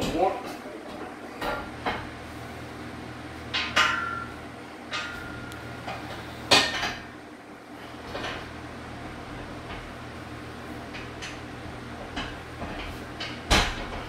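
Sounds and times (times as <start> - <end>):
metal clanks and knocks: 3.5 - 7.2, 8.0 - 8.5, 12.0 - 14.0.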